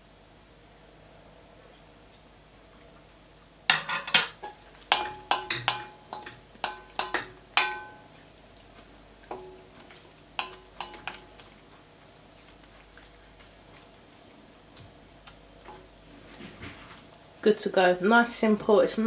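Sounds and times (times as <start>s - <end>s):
wooden spoon knocking against pot: 3.7s - 8.2s, 10.4s - 11.3s.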